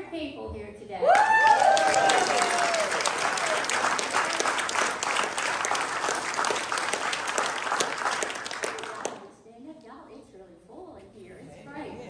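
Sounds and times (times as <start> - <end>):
congregation applauding: 1.1 - 9.3.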